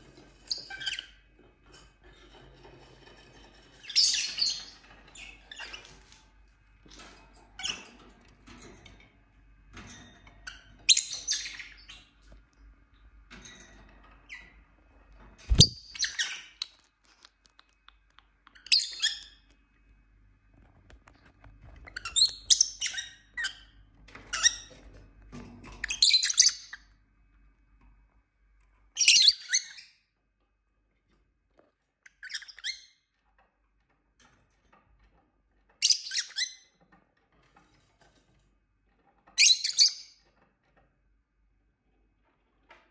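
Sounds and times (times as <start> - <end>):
birds chirping and squawking: 15.5 - 19.5.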